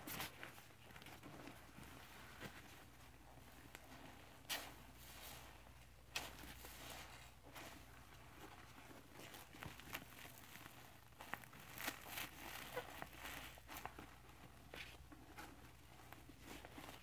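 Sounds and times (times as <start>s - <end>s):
wet squishing of sponge foam: 3.8s - 15.0s.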